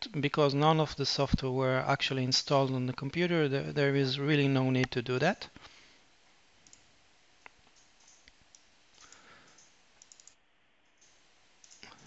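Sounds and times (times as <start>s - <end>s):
faint computer mouse clicks: 6.6s - 10.4s.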